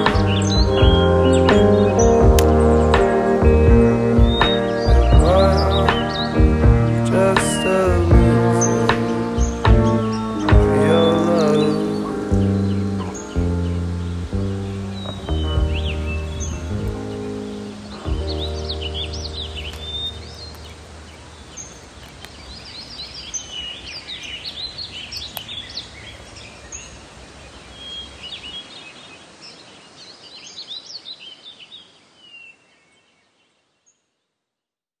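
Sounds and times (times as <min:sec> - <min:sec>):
background music: 0:00.0 - 0:21.2
birds chirping and singing: 0:00.0 - 0:33.2.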